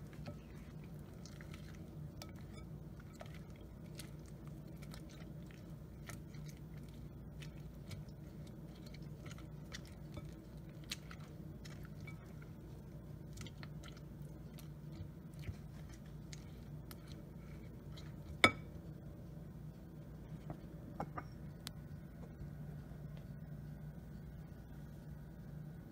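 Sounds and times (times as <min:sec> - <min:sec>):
spatula stirring wet salad: 0:00.0 - 0:19.4.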